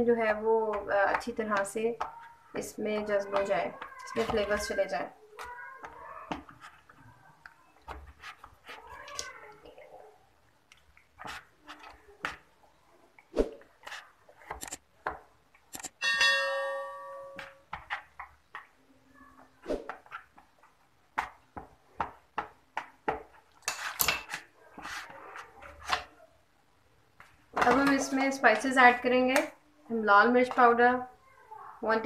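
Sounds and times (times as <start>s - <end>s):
bell-like chime: 16.0s - 17.4s.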